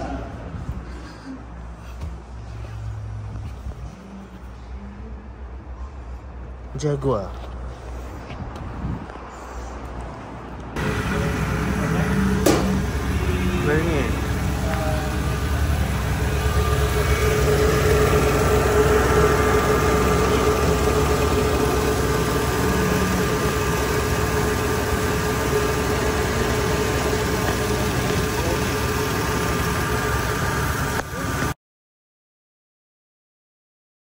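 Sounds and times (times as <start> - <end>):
car engine idling: 10.8 - 31.6.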